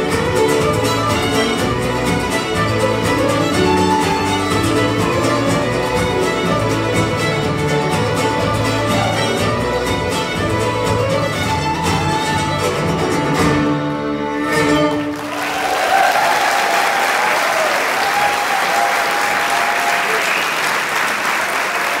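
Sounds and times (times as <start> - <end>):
fiddles and guitars playing folk tune: 0.0 - 15.4
audience applause: 15.0 - 22.0.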